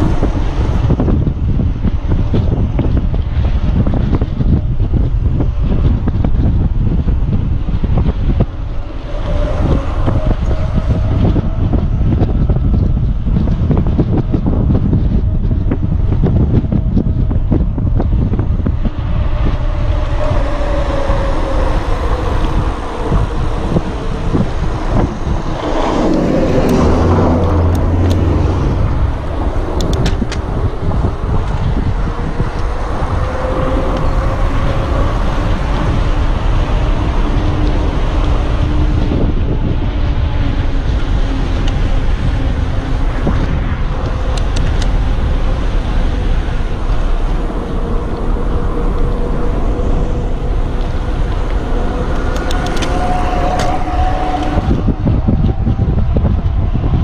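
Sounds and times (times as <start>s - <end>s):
motor vehicle rumble: 0.0s - 57.0s
wind buffeting microphone: 0.0s - 57.0s.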